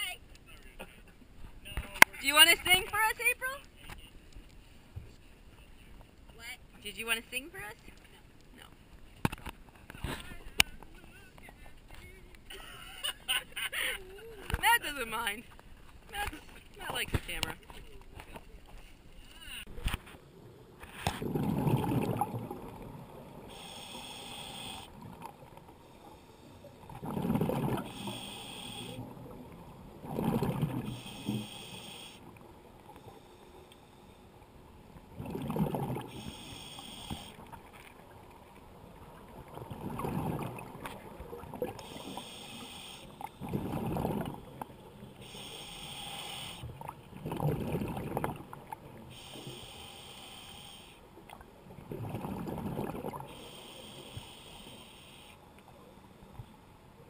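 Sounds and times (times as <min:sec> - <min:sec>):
bubbles rushing on exhale: 0:21.0 - 0:23.4, 0:26.8 - 0:28.2, 0:29.0 - 0:31.1, 0:35.1 - 0:36.3, 0:39.2 - 0:42.2, 0:43.2 - 0:44.7, 0:46.7 - 0:48.8, 0:51.8 - 0:53.3
regulator hiss on inhale: 0:23.5 - 0:25.0, 0:25.8 - 0:26.8, 0:27.8 - 0:29.1, 0:30.9 - 0:32.3, 0:32.9 - 0:34.3, 0:36.1 - 0:37.4, 0:41.8 - 0:43.4, 0:45.0 - 0:46.8, 0:49.0 - 0:51.1, 0:53.3 - 0:56.5.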